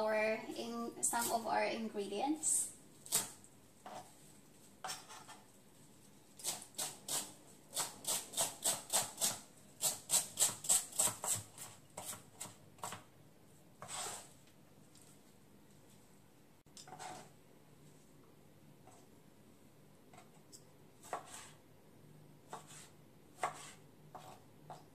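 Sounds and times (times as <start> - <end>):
knife chopping on plastic board: 22.5 - 24.9.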